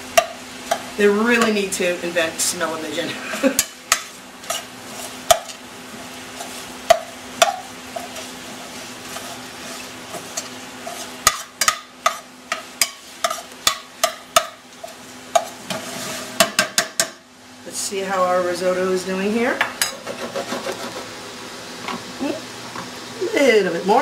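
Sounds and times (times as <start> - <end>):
sausage sizzling in a pan: 0.0 - 17.7, 19.8 - 24.0
metal spoon clinking and scraping pan: 3.6 - 5.6, 9.1 - 17.1.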